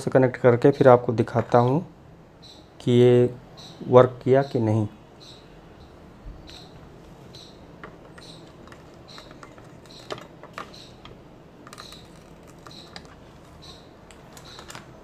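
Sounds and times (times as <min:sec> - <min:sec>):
faint high chirp: 0:05.2 - 0:11.1, 0:11.7 - 0:14.8.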